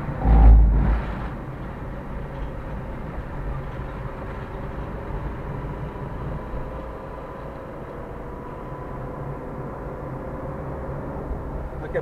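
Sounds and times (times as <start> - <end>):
deep rumble: 0.0 - 2.5
car engine and tyre noise: 0.0 - 12.0.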